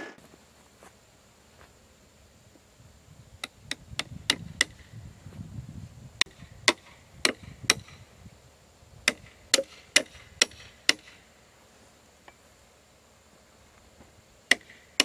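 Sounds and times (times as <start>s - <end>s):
hammer striking wood: 6.2s - 8.0s, 9.0s - 11.2s, 14.5s - 14.8s.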